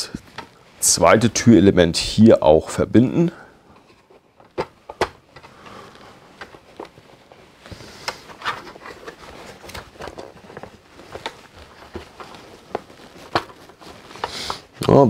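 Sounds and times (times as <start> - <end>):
plastic parts clicking and knocking: 3.7 - 5.6, 6.3 - 7.0, 8.0 - 14.6.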